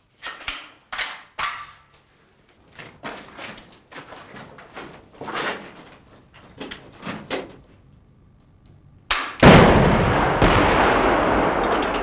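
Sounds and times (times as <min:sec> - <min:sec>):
knocks and scuffs of gear: 0:00.2 - 0:07.8
rocket launcher firing blast: 0:09.4 - 0:12.0.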